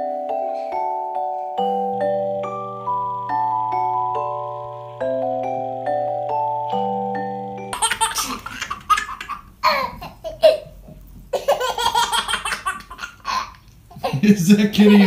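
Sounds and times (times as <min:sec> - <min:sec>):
baby laughing: 0:07.7 - 0:15.0.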